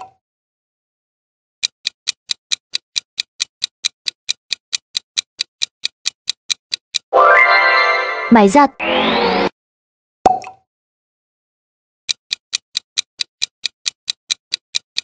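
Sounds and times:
clock ticking: 0:01.6 - 0:07.1, 0:12.1 - 0:15.0.

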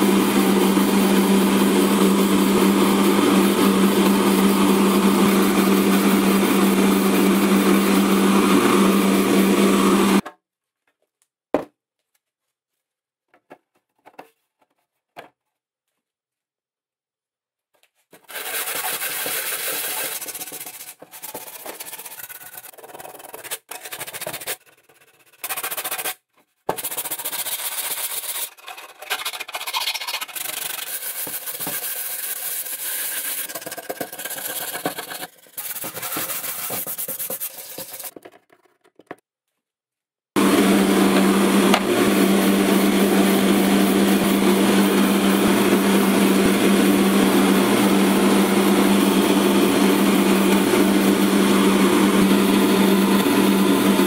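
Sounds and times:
scratchy sanding strokes: 0:18.3 - 0:38.1.

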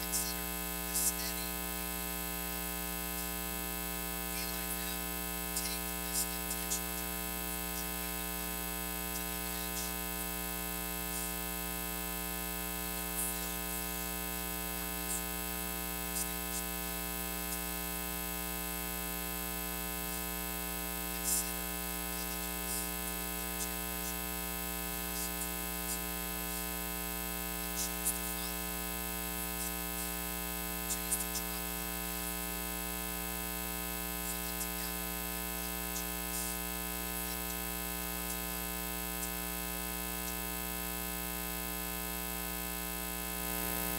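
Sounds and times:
electrical mains hum: 0:00.0 - 0:43.9.

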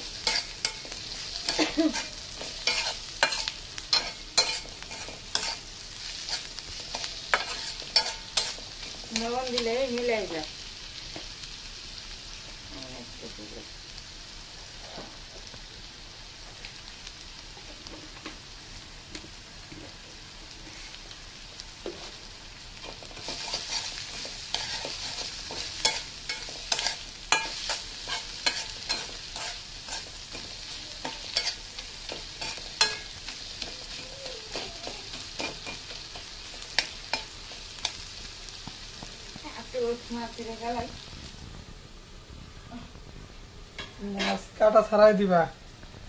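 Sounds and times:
spatula scraping metal pan: 0:00.0 - 0:09.6, 0:22.8 - 0:37.4
onions sizzling in oil: 0:00.0 - 0:46.0.

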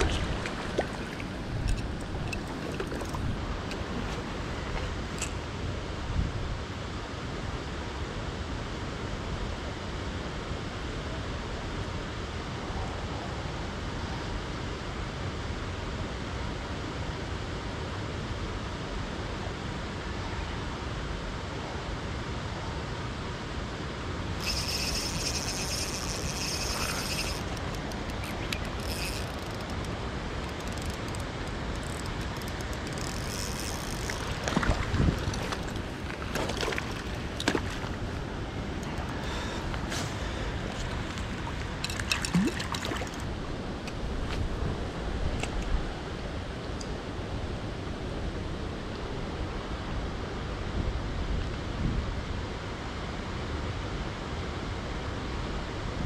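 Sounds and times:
river water rushing: 0:00.0 - 0:06.0, 0:24.2 - 0:43.8.

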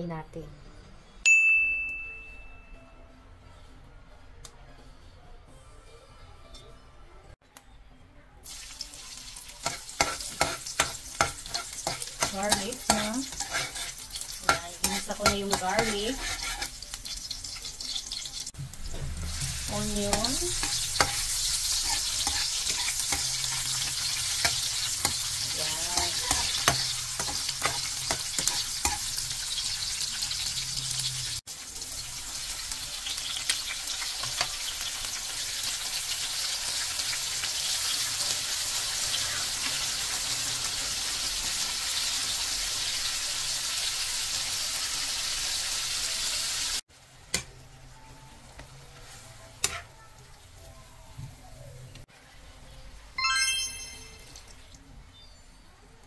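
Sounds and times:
garlic and onion sizzling in oil: 0:08.4 - 0:52.7
metal ladle scraping a wok: 0:09.6 - 0:16.8, 0:19.3 - 0:29.5.

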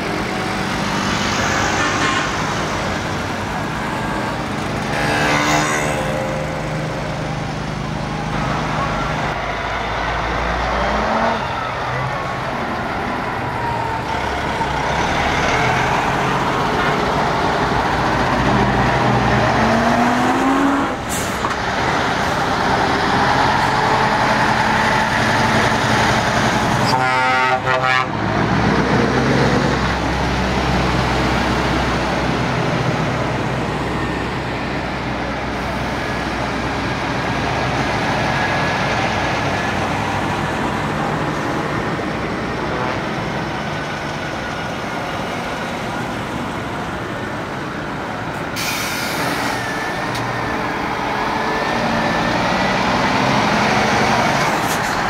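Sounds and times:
diesel trucks driving past: 0:00.0 - 0:55.0
truck horn blast: 0:04.8 - 0:06.3, 0:26.8 - 0:28.2.

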